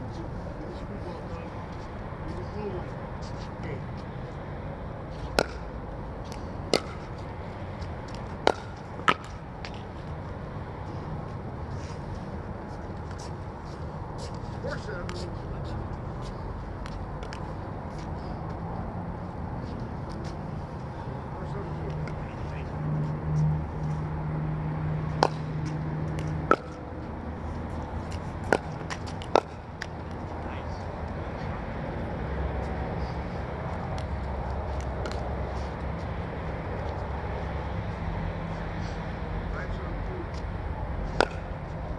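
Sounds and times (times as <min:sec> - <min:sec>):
steady low hum: 0:00.0 - 0:41.9
paddles hitting plastic ball: 0:05.3 - 0:05.6, 0:06.3 - 0:07.1, 0:07.8 - 0:09.8, 0:28.1 - 0:30.0, 0:41.2 - 0:41.5.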